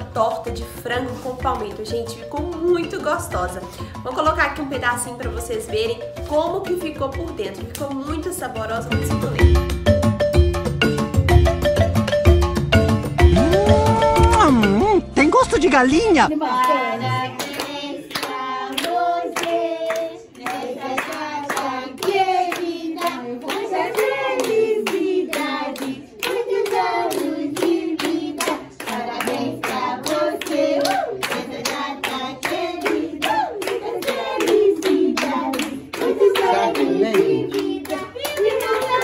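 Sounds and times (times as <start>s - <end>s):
hand-clapping in time: 7.4s - 10.6s, 11.4s - 14.8s, 16.5s - 39.0s
people singing together: 16.3s - 39.0s.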